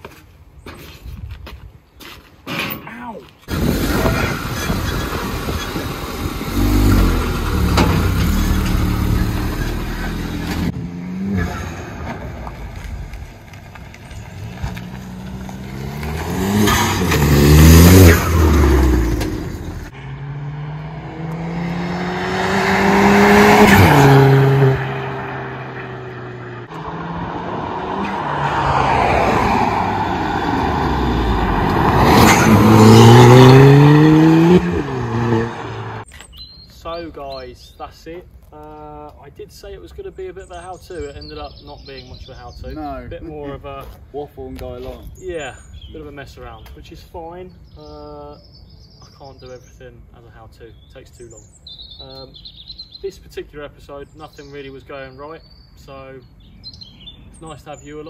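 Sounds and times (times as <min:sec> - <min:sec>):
road and wind noise: 0:00.0 - 0:58.0
car engine revving: 0:03.5 - 0:12.9, 0:13.6 - 0:36.0.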